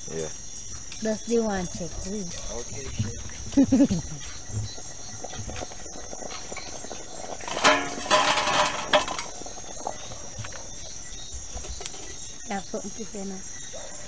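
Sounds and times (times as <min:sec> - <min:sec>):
crickets chirping: 0:00.0 - 0:14.0
clattering noise: 0:05.4 - 0:10.6.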